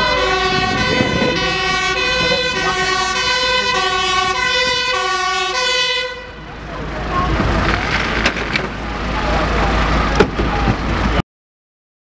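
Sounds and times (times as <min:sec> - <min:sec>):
fire engine two-tone siren: 0:00.0 - 0:07.3.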